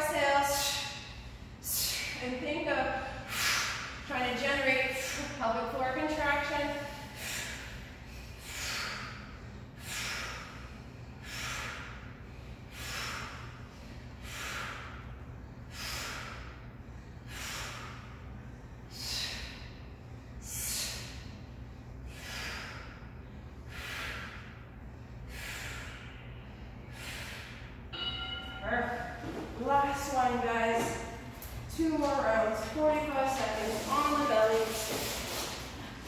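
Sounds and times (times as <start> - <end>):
woman breathing: 0.2 - 4.0, 4.8 - 5.5, 6.5 - 29.3.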